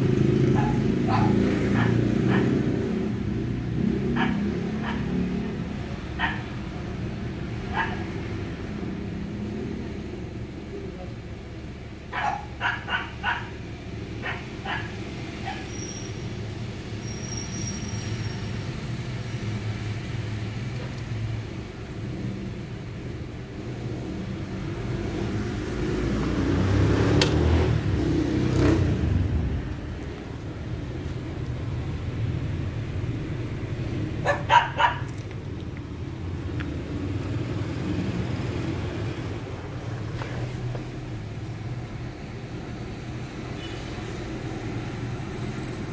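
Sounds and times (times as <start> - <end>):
dog barking: 0.5 - 2.6, 4.1 - 5.2, 6.2 - 6.6, 7.7 - 8.1, 12.1 - 13.6, 14.2 - 15.7, 34.2 - 35.1.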